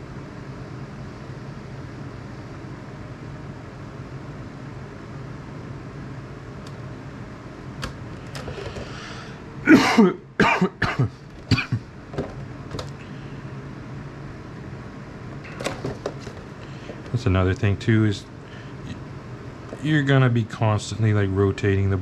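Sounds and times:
steady low hum: 0:00.0 - 0:22.0
man coughing and clearing throat: 0:09.6 - 0:11.9.

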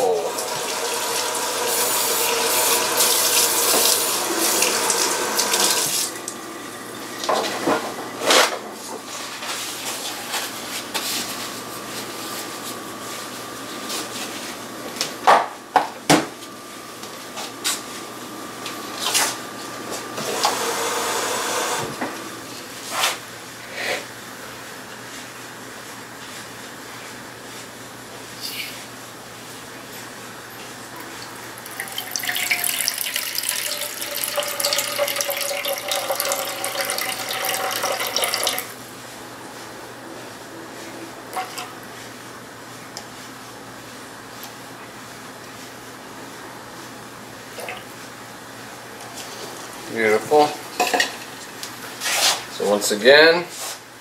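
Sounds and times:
tap water running into plastic cup: 0:00.4 - 0:06.4, 0:31.6 - 0:38.7.

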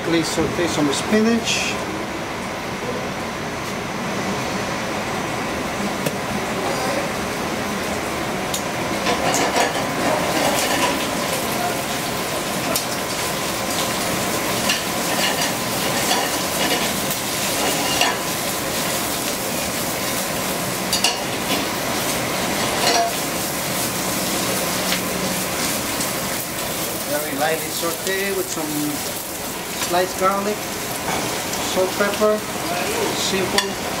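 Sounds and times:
spinach sizzling in skillet: 0:07.8 - 0:34.0.

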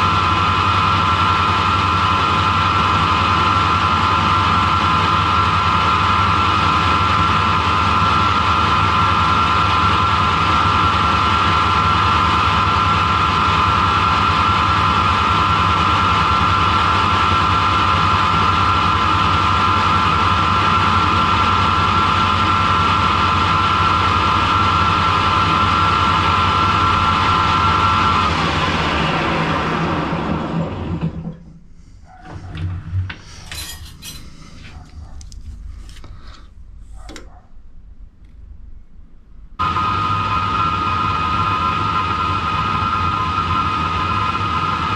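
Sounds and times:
lathe whining: 0:00.0 - 0:31.6
light clicks and scrapes: 0:33.1 - 0:37.3.

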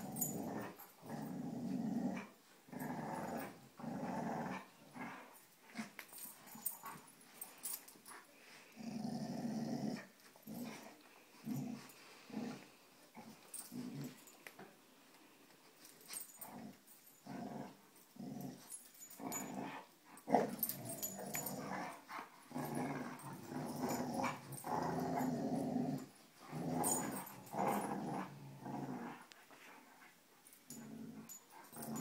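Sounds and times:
dogs growling: 0:00.0 - 0:07.0, 0:08.8 - 0:14.3, 0:16.2 - 0:29.4, 0:30.7 - 0:32.0.

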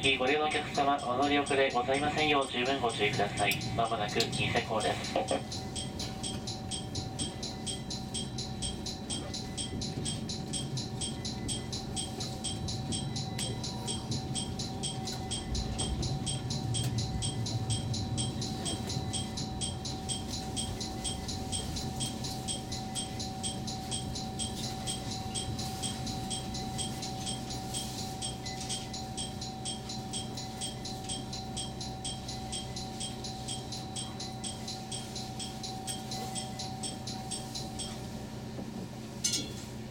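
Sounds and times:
steady mid-pitched tone: 0:00.0 - 0:38.8
train running rumble: 0:00.0 - 0:39.9.

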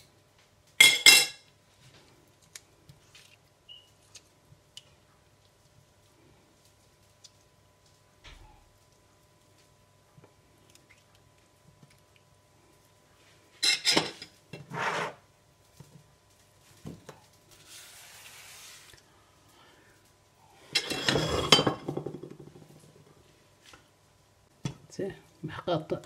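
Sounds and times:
dishes and utensils clattering: 0:00.8 - 0:01.4, 0:13.6 - 0:15.2, 0:20.7 - 0:22.6.

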